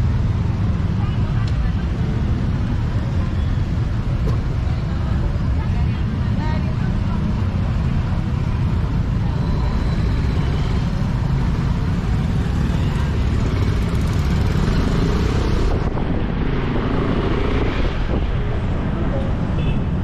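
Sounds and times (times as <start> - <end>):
low traffic rumble: 0.0 - 20.0
motorcycle and car engines: 0.0 - 20.0
people talking: 0.9 - 2.2, 4.8 - 8.1.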